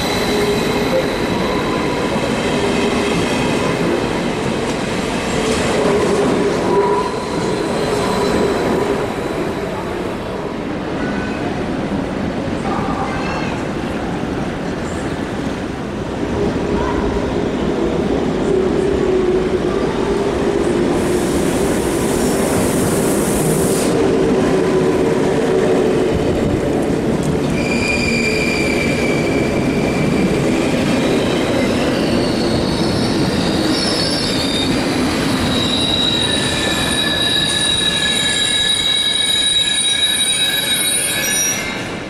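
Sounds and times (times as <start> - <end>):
train wheels and brakes squealing: 0.0 - 3.4, 6.4 - 10.2, 27.4 - 42.0
train rumbling: 0.0 - 42.0.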